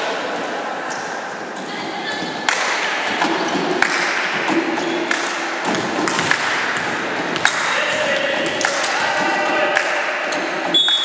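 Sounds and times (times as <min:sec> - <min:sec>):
sports hall background noise: 0:00.0 - 0:11.0
players calling: 0:04.4 - 0:11.0
volleyball smacks: 0:05.1 - 0:10.0.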